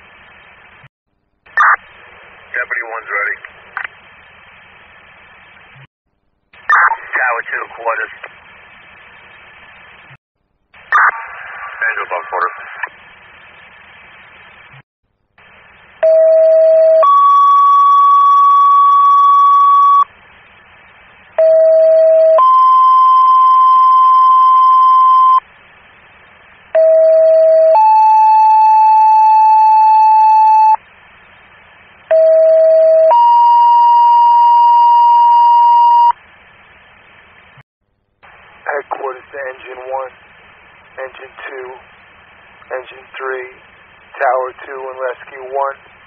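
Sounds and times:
radio hiss: 1.5 - 5.9, 6.6 - 10.2, 10.8 - 14.8, 38.2 - 46.0.

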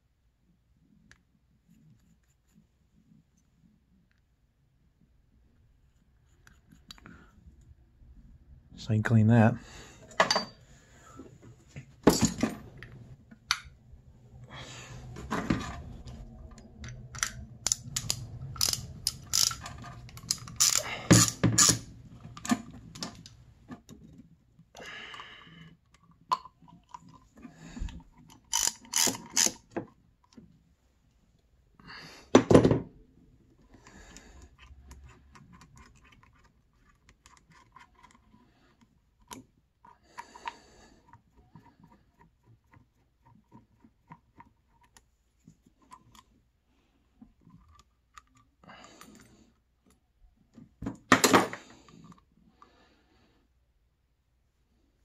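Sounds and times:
hand tools and metal parts clinking: 10.0 - 10.6, 12.0 - 12.9, 15.2 - 23.3, 28.2 - 29.8.

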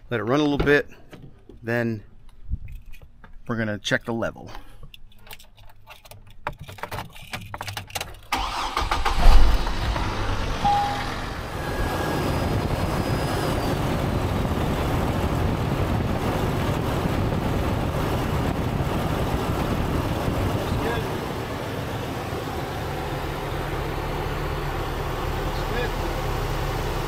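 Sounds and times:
engine cranking and starting: 7.8 - 11.3
engine idling: 19.3 - 27.0.

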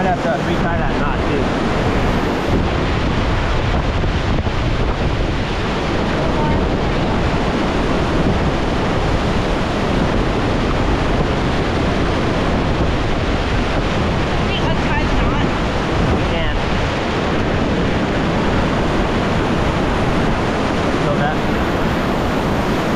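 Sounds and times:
river whitewater rushing: 0.0 - 22.9
wind buffeting microphone: 0.0 - 22.9.

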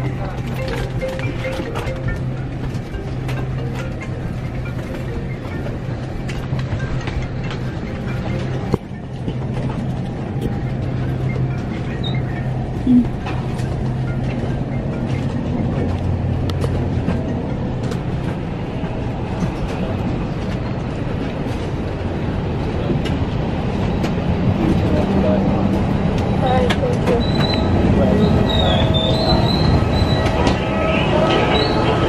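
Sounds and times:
aircraft cabin air system hum: 0.0 - 32.0
passengers' clicks and knocks: 0.0 - 32.0.

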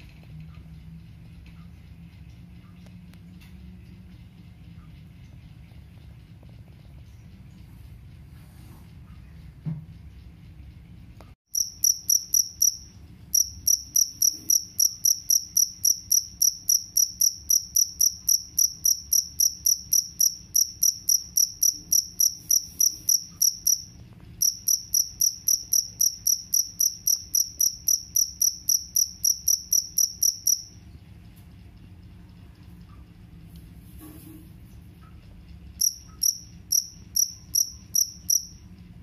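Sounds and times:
cricket chirping: 11.5 - 30.8, 35.8 - 38.7.

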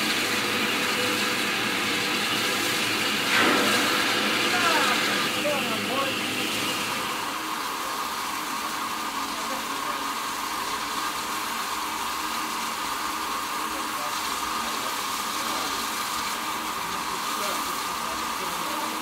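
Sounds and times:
steam locomotive hissing: 0.0 - 19.0
people's voices: 4.4 - 6.4.

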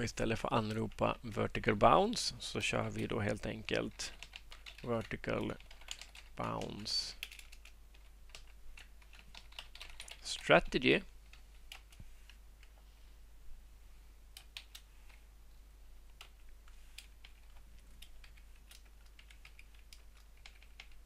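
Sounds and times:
keyboard typing: 3.0 - 12.8, 14.3 - 15.2, 16.1 - 21.0.

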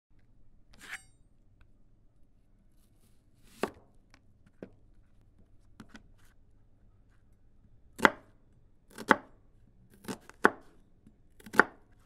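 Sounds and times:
knife chopping on cutting board: 3.5 - 3.8, 8.9 - 9.3, 10.0 - 10.7, 11.4 - 11.8.

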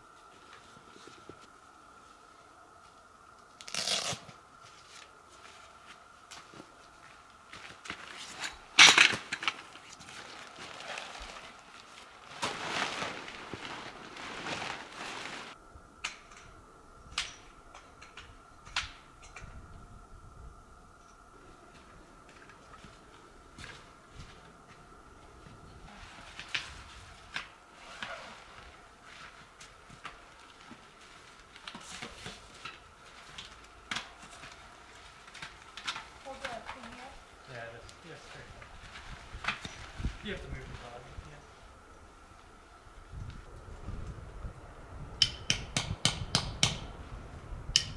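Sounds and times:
tent fabric and poles rustling: 0.0 - 16.6, 21.0 - 44.7
tent fabric rustling and flapping: 7.5 - 15.6, 25.9 - 33.7.

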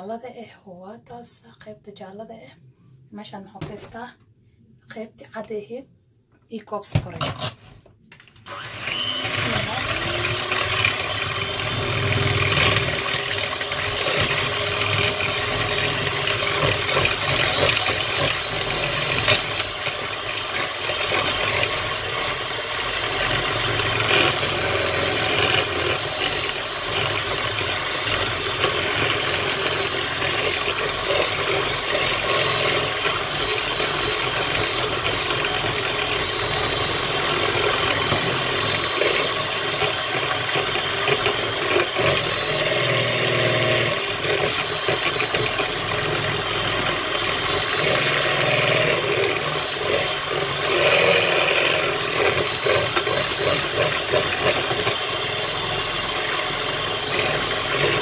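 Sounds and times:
electric hand mixer whisking: 8.5 - 58.0.

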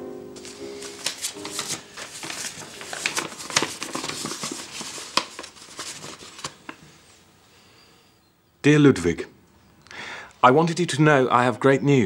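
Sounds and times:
paper crinkling and rustling: 0.4 - 7.0.

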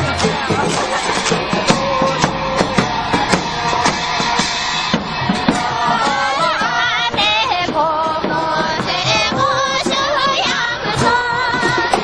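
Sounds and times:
group of voices singing: 0.0 - 12.0
steady drumbeat: 0.0 - 12.0.

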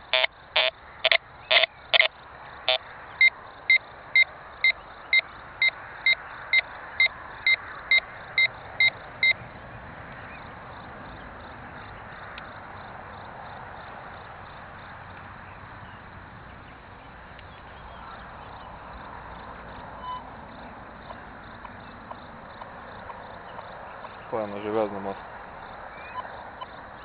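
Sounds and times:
metal detector beeping: 0.0 - 2.1, 20.0 - 20.3
faint outdoor hiss: 0.0 - 27.0.

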